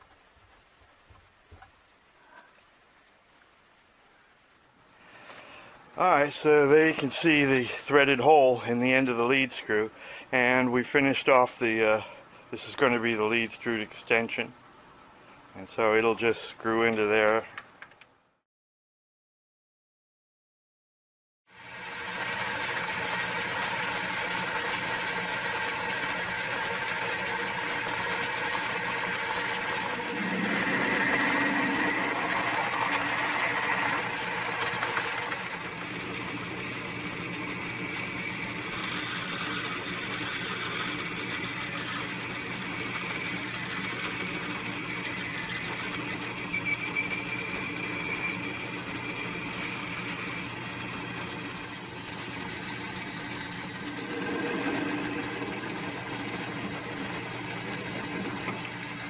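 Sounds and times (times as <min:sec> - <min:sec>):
lathe motor and belt whine: 0:21.5 - 0:59.0
lathe cutting metal: 0:21.6 - 0:58.8.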